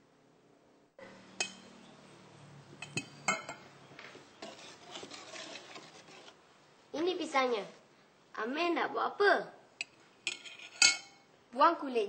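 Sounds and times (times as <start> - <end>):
dishes and utensils clinking: 1.4 - 1.8, 2.8 - 3.7, 9.8 - 11.2
rustling: 4.0 - 6.4.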